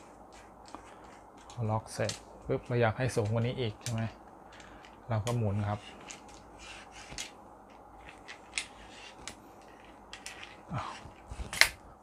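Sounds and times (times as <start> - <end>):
tripod column clicks and scrapes: 11.3 - 11.8.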